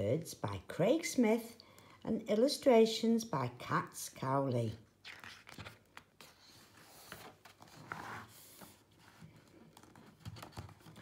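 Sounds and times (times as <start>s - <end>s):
paper page turning: 5.0s - 8.8s.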